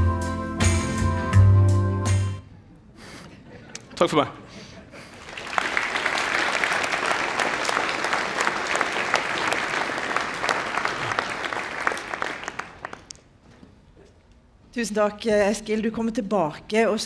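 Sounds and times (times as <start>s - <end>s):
audience clapping: 5.0s - 13.4s.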